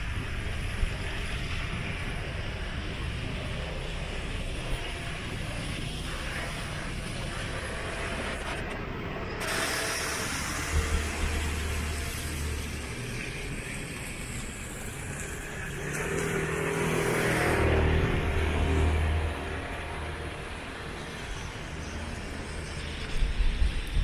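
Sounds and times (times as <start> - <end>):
rain hissing on wet pavement: 9.4 - 24.0.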